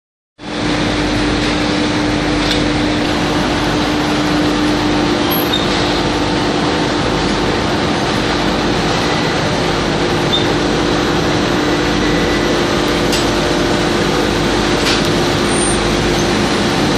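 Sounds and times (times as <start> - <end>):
shot blasting machine running: 0.4 - 16.9.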